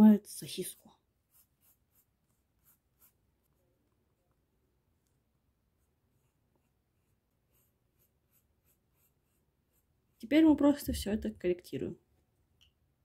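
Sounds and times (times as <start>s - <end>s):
pencil scratching on paper: 0.4s - 4.3s, 5.0s - 10.6s.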